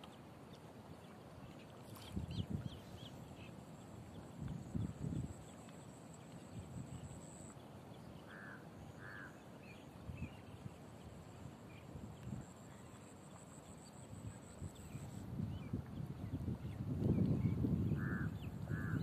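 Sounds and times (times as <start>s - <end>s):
wind buffeting microphone: 2.0s - 3.5s, 4.1s - 5.6s, 14.2s - 19.0s.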